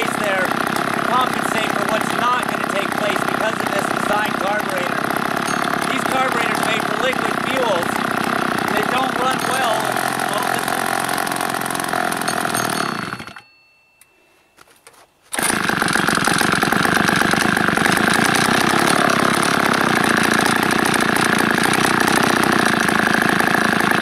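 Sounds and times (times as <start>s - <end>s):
chainsaw engine idling: 0.0s - 13.5s, 15.3s - 24.0s.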